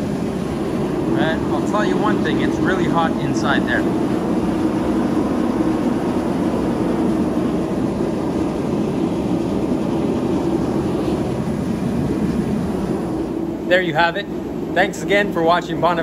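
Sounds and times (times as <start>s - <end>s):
gas burners roaring: 0.0s - 16.0s.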